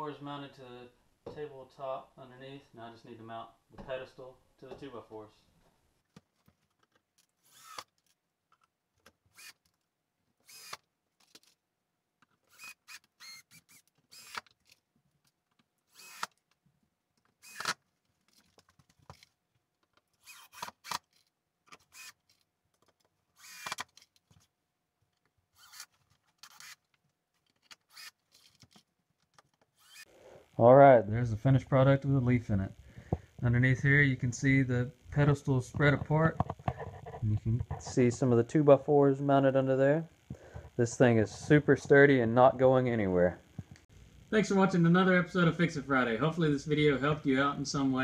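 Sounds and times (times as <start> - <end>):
cordless drill driving screws: 7.4 - 8.0, 9.3 - 9.7, 10.4 - 10.8, 12.4 - 14.8, 15.9 - 16.4, 17.4 - 17.8, 20.2 - 21.2, 21.8 - 22.4, 23.4 - 24.0, 25.6 - 26.8, 27.7 - 28.6, 29.8 - 30.2.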